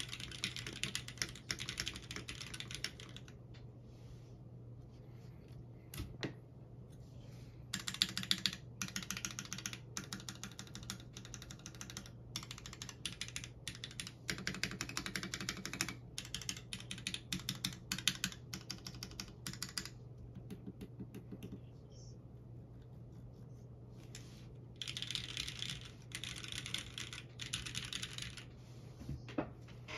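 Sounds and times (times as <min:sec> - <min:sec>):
mechanical keyboard typing: 0:00.0 - 0:03.4, 0:07.7 - 0:21.6, 0:24.8 - 0:28.5.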